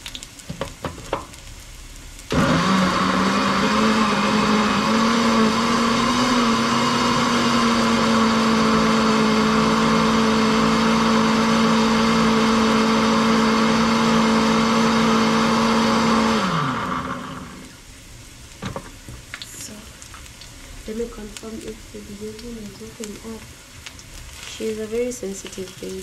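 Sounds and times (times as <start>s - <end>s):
blender motor running: 2.3s - 17.8s
blender motor spinning down: 2.3s - 17.8s.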